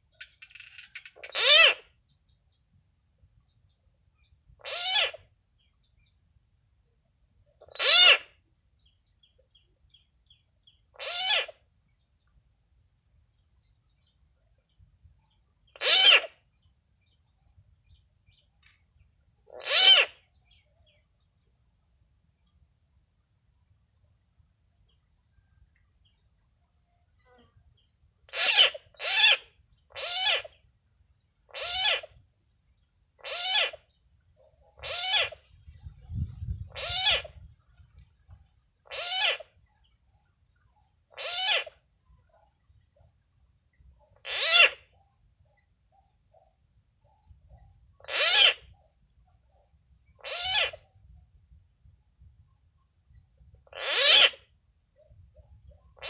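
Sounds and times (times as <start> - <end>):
coucal hooting calls: 1.2 - 1.9, 4.6 - 5.2, 7.7 - 8.3, 11.0 - 11.6, 15.8 - 16.3, 19.6 - 20.2, 31.5 - 32.1, 33.2 - 33.8, 34.8 - 35.4, 36.7 - 37.3, 38.9 - 39.4, 41.2 - 41.8, 44.2 - 44.8, 48.0 - 48.6, 50.2 - 50.8, 53.7 - 54.4.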